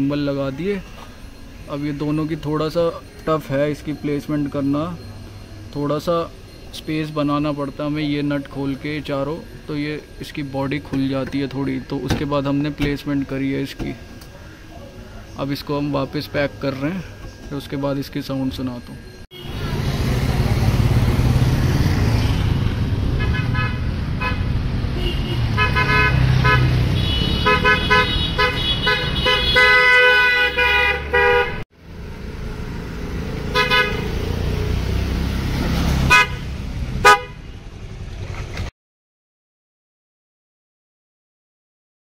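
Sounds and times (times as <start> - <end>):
street traffic: 0.0 - 38.7
scooter engine rumble: 19.4 - 30.0
twin-tone horn honking: 22.1 - 31.6, 33.4 - 34.3, 36.0 - 37.5.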